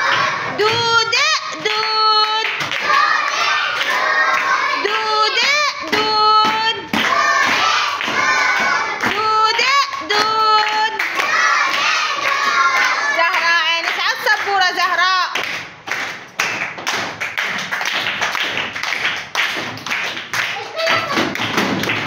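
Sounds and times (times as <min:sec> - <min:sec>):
girls singing a chant: 0:00.0 - 0:13.7
girls clapping hands: 0:01.5 - 0:22.0.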